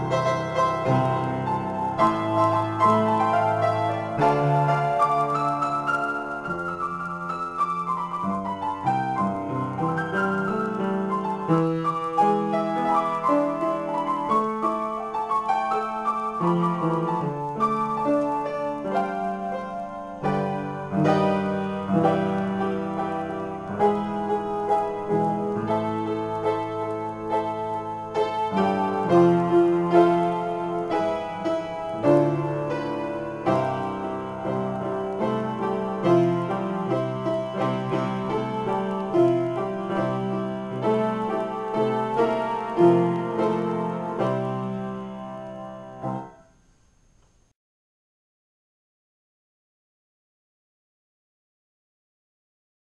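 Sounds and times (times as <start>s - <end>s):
solo piano improvisation: 0.0s - 46.7s.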